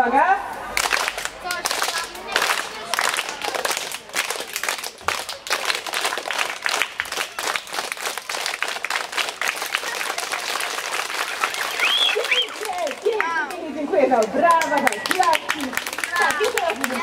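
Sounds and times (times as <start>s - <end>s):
crowd clapping: 0.7s - 17.0s.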